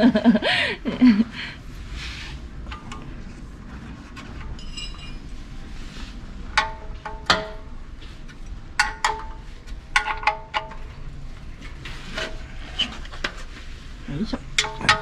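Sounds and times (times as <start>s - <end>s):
metal tools clinking: 4.4s - 5.4s.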